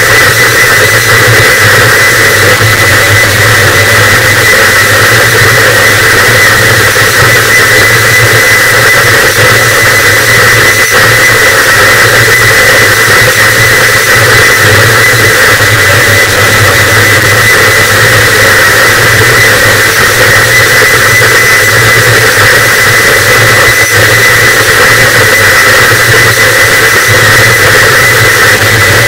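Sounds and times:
low hum: 0.0 - 8.4
distorted static noise wall: 0.0 - 29.0
steady high whine: 0.0 - 29.0.

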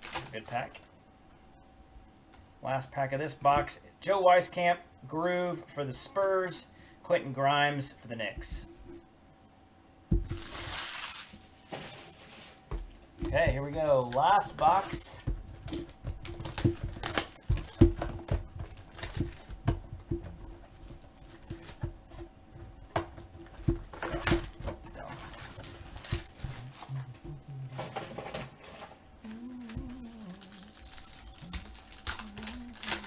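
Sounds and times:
foil pack crinkling: 0.0 - 0.9, 10.2 - 12.7, 13.5 - 21.9, 23.4 - 27.0, 29.8 - 33.0.

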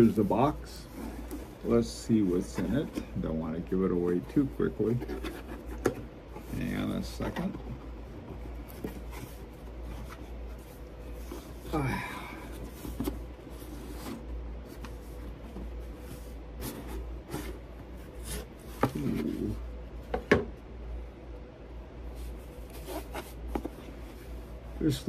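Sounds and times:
cardboard rubbing and scraping: 4.0 - 11.8, 12.5 - 19.6, 22.2 - 25.0.

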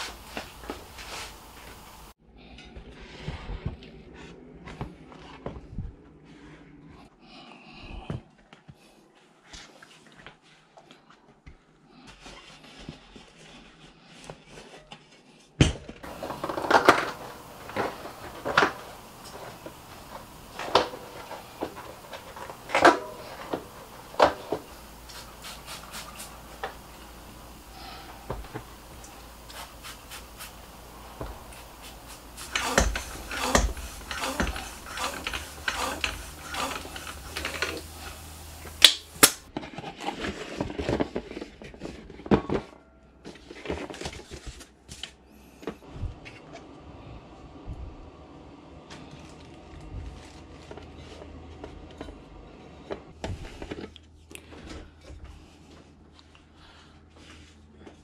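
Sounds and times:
tyre knocking and rubbing on rim: 16.0 - 38.8
spray bottle squirts: 24.1 - 26.6.

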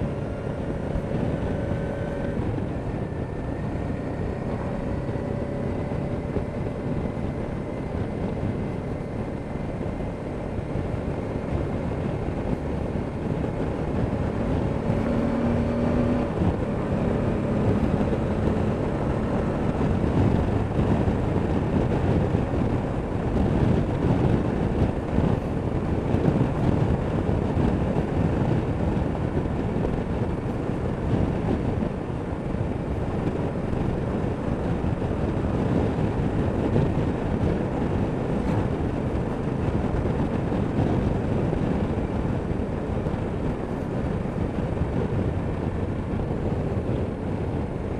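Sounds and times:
motorcycle engine running: 0.0 - 47.9
wind and road rush: 0.0 - 47.9.

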